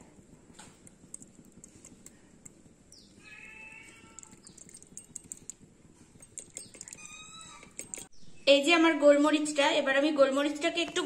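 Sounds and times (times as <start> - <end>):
drawn-out animal call: 3.2 - 4.7
metal spoon clicking on pot: 6.2 - 8.1.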